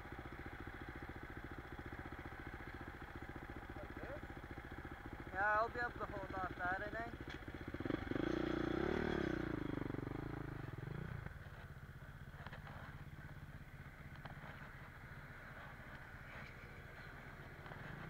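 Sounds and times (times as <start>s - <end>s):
dirt bike engine revving: 7.6s - 11.6s.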